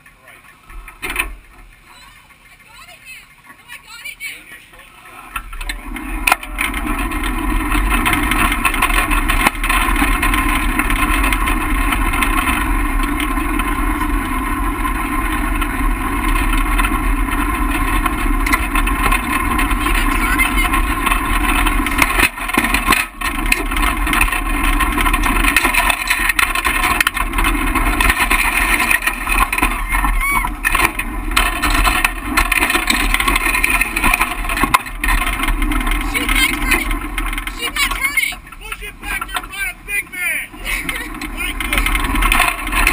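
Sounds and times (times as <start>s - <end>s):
kart engine running: 0.0s - 42.9s.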